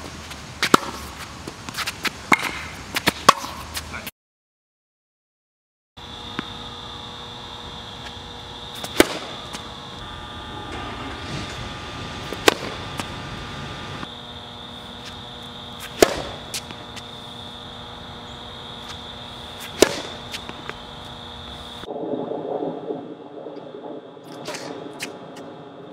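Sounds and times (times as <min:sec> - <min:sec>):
tennis racket hitting ball: 0:00.6 - 0:03.8, 0:08.8 - 0:09.6, 0:12.2 - 0:14.1, 0:15.8 - 0:17.0, 0:18.8 - 0:21.1
steady high-pitched whine: 0:06.0 - 0:25.9.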